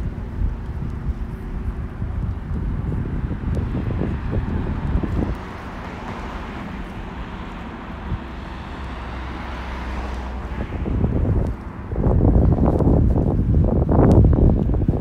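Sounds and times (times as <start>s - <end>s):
wind buffeting microphone: 0.0s - 15.0s
vehicle passing: 2.8s - 14.7s.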